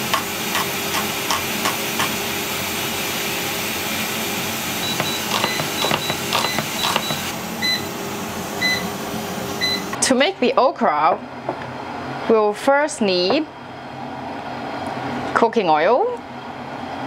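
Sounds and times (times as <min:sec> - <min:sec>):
knife chopping on wooden board: 0:05.0 - 0:07.3.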